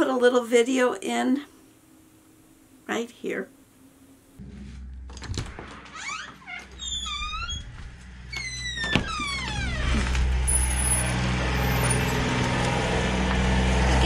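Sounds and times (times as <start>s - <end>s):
doors squeaking open: 5.7s - 12.6s
tractor engine running: 7.7s - 14.0s.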